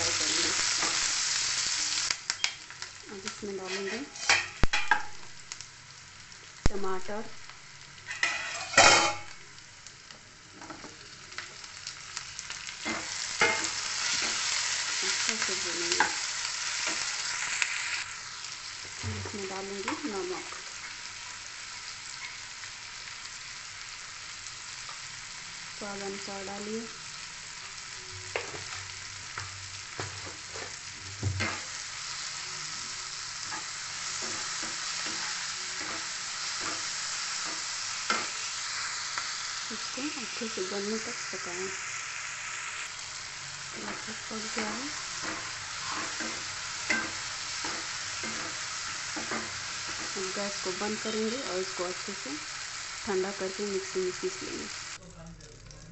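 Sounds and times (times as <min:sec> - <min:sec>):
onions sizzling in oil: 0:00.0 - 0:55.9
wooden spatula scraping pan: 0:03.6 - 0:04.6
spatula knocking and scraping pan: 0:03.6 - 0:05.1, 0:33.5 - 0:38.3, 0:43.8 - 0:50.1.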